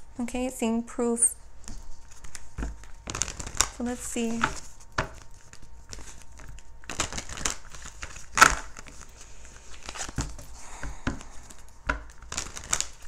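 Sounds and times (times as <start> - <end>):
cards being shuffled: 1.5 - 13.0.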